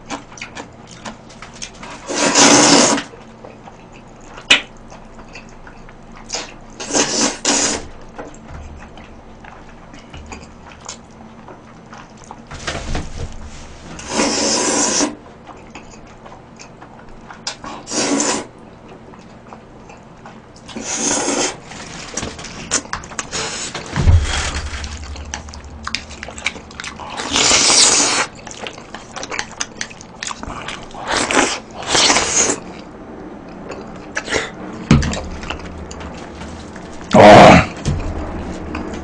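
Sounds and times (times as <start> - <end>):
wet chewing: 0.0 - 12.5, 14.1 - 21.7, 22.4 - 39.0
loud noodle slurping: 2.0 - 3.1, 6.8 - 7.9, 14.1 - 15.2, 17.9 - 18.5, 20.8 - 21.6, 26.9 - 28.5.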